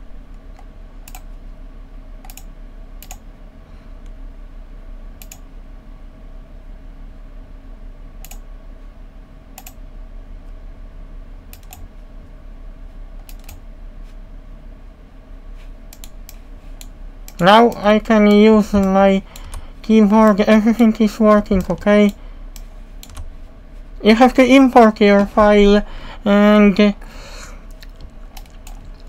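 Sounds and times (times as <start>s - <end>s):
low steady hum: 0.0s - 29.0s
computer mouse clicks: 0.4s - 1.3s, 2.2s - 3.2s, 5.2s - 5.4s, 8.2s - 8.4s, 9.6s - 9.8s, 11.5s - 11.9s, 13.2s - 13.6s, 15.9s - 20.2s, 21.4s - 23.3s, 27.7s - 29.0s.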